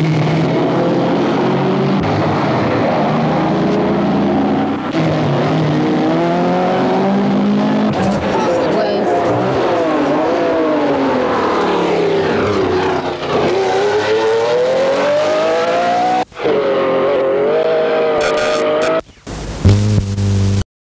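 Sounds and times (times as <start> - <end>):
sports car engine accelerating: 0.0 - 20.6
tape glitches: 18.2 - 20.6.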